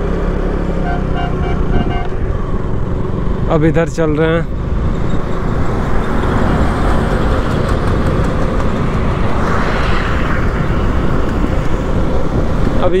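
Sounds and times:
road and traffic noise: 0.0s - 13.0s
wind rumbling on microphone: 4.4s - 13.0s.

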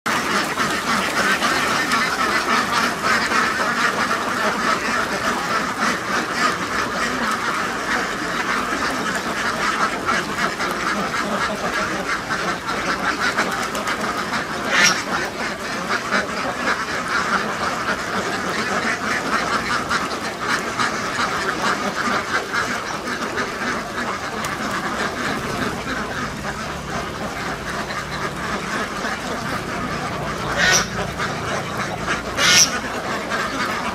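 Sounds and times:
ducks quacking: 0.1s - 33.9s.

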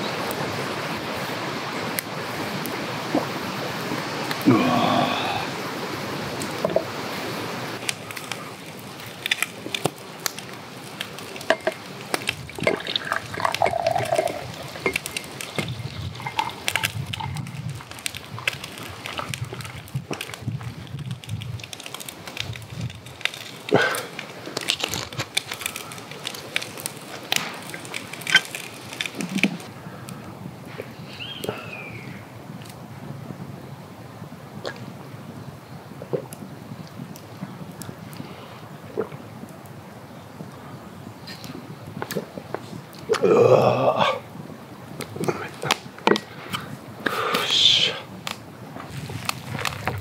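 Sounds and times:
liquid sloshing and splashing: 12.4s - 17.4s
drink pouring into glass: 12.5s - 15.3s, 16.2s - 17.4s.

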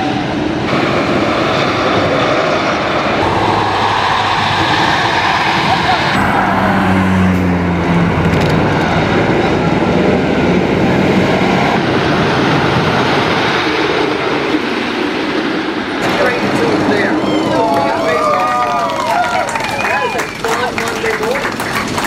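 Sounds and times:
wooden roller coaster rumbling clatter: 7.9s - 10.6s, 11.4s - 22.0s.

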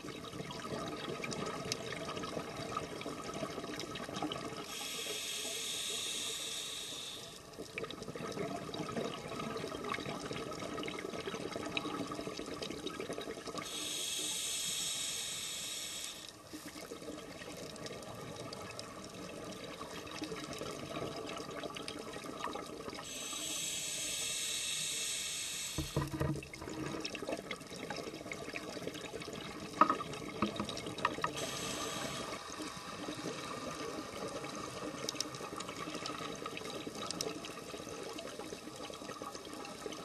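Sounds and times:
crackling and clicking underwater: 0.0s - 40.0s
scuba regulator hissing: 4.7s - 7.3s, 13.7s - 16.3s, 23.1s - 26.0s, 31.4s - 32.4s.

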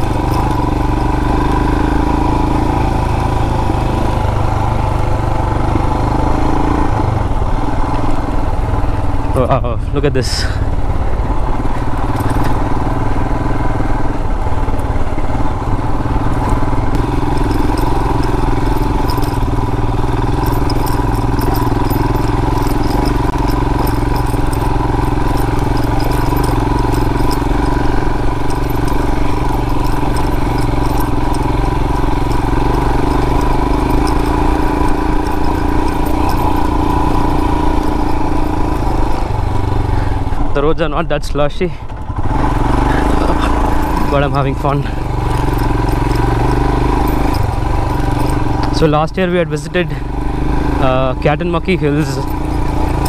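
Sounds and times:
light ticks and rattles: 0.0s - 4.2s, 11.6s - 13.0s, 16.2s - 40.4s, 42.8s - 53.0s
motorcycle engine running: 0.0s - 53.0s.

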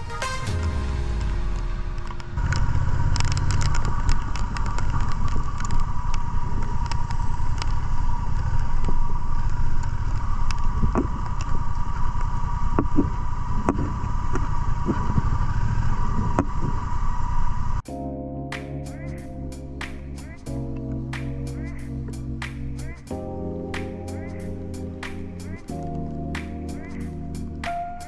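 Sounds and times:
high whine: 0.0s - 17.9s, 18.5s - 28.0s
raindrops hitting camera: 0.5s - 16.8s, 19.6s - 28.0s
motorcycle engine running: 0.6s - 16.9s.

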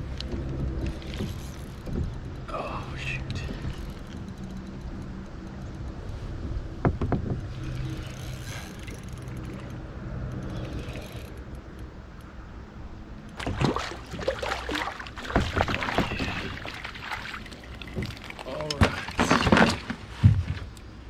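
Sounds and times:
spinning reel being cranked: 10.4s - 11.4s
fish splashing at surface: 13.4s - 18.4s.

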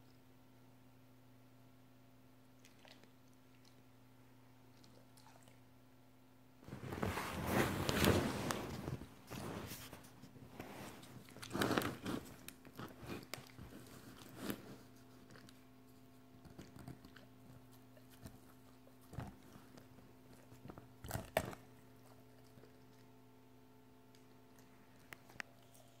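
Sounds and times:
dog crunching on a bone: 10.9s - 23.2s.

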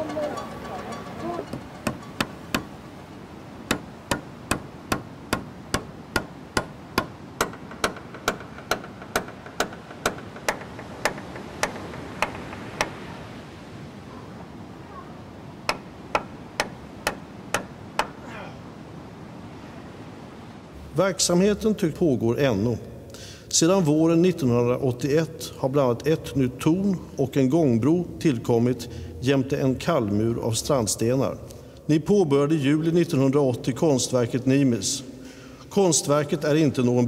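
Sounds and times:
hammer blows on wood: 0.0s - 2.8s, 3.6s - 13.4s, 15.7s - 18.5s.

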